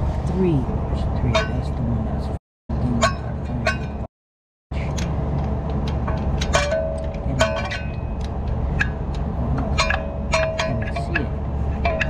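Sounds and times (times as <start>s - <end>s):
steady low rumble: 0.0s - 4.1s, 4.7s - 12.0s
hand tools clicking and clinking: 4.9s - 12.0s.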